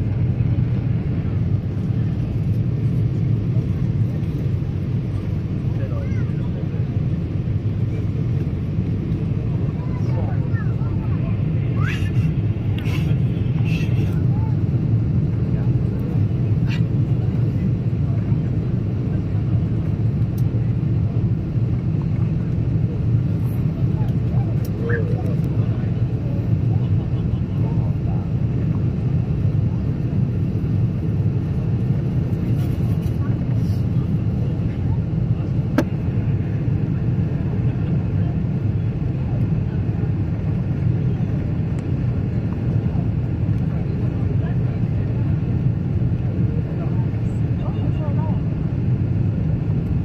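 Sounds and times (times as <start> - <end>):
airliner engine and airflow rumble: 0.0 - 50.0.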